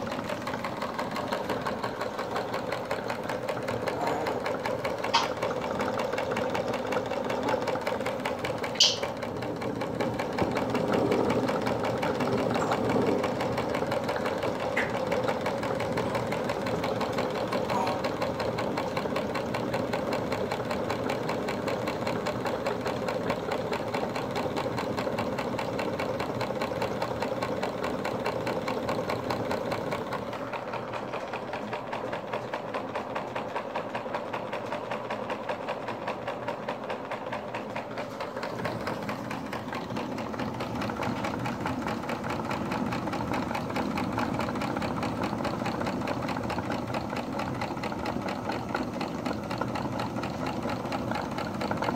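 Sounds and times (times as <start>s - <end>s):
model steam engine running: 0.0s - 51.9s
valve gear clicking: 5.0s - 5.7s, 8.6s - 9.2s.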